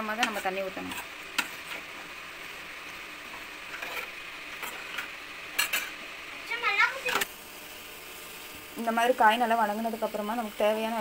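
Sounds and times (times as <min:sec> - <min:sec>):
vegetables sizzling in hot oil: 0:00.0 - 0:11.0
metal spoon scraping pan: 0:00.2 - 0:01.8, 0:03.7 - 0:06.0.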